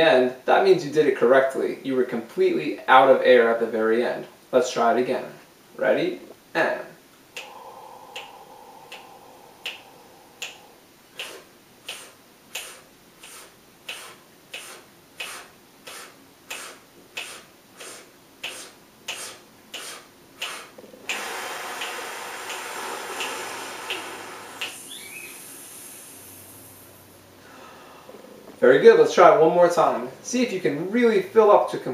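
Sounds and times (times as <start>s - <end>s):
finger snaps: 7.3s - 26.0s
breath sips: 7.3s - 28.6s
loud open exhale: 7.3s - 28.6s
person inhaling: 7.3s - 28.6s.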